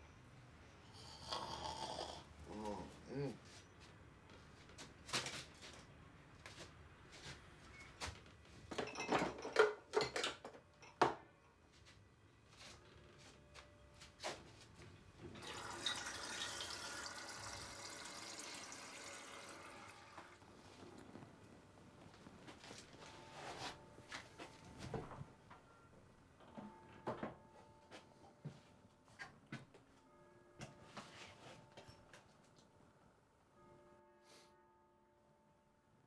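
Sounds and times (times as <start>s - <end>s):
kitchen things knocking and clinking: 8.7s - 11.3s
water running into a glass: 15.4s - 20.4s.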